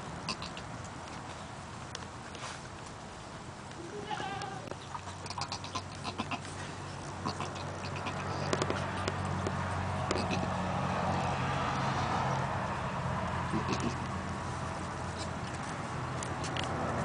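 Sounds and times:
goat bleat: 0:03.8 - 0:08.6, 0:10.1 - 0:10.5, 0:13.5 - 0:14.0.

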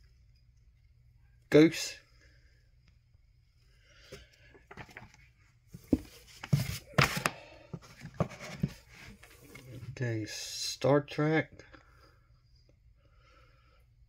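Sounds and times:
comic books rustling in box: 0:04.6 - 0:10.0.

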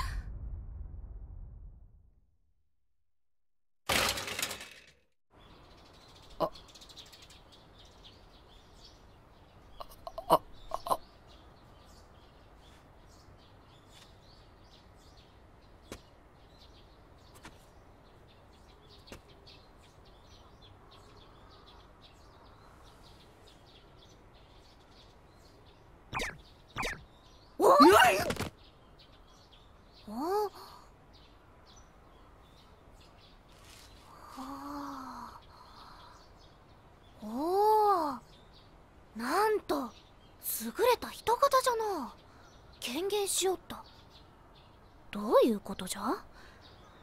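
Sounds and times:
faint bird chirps: 0:05.4 - 0:47.0.

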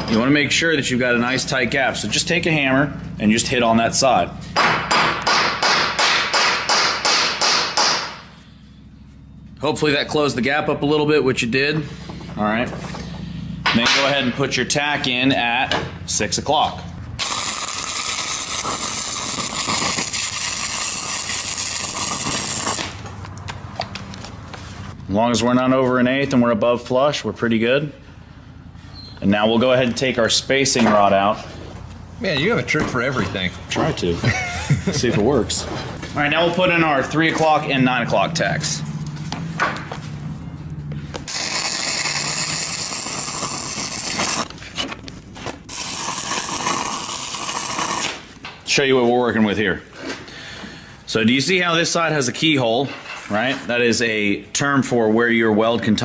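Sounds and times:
welding arc sizzling: 0:17.1 - 0:23.1, 0:41.2 - 0:44.5, 0:45.6 - 0:48.4.

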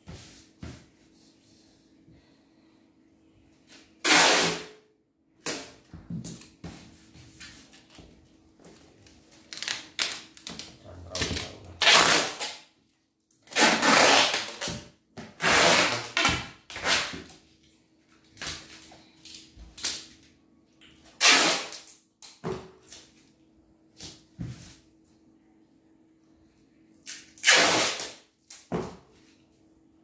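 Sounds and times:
packing tape ripping: 0:04.0 - 0:04.7, 0:09.4 - 0:12.6, 0:13.4 - 0:14.8, 0:15.4 - 0:17.3, 0:21.2 - 0:22.4, 0:27.0 - 0:28.7.

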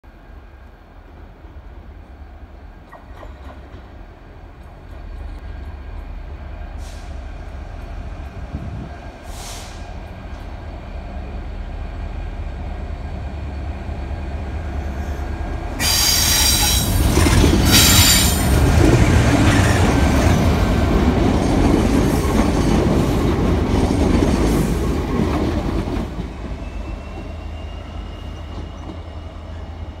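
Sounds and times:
diesel locomotive engine: 0:00.1 - 0:30.0
wheels squealing: 0:15.8 - 0:18.6.

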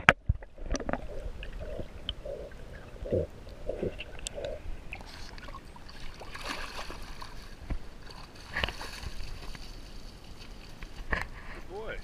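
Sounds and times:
pool water splashing: 0:00.0 - 0:09.2.

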